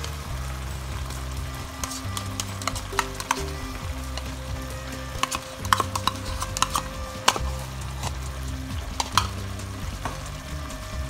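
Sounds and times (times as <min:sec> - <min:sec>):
curry simmering in a pan: 0:00.0 - 0:11.0
low steady hum: 0:00.0 - 0:11.0
spoon scooping yogurt: 0:05.2 - 0:08.2.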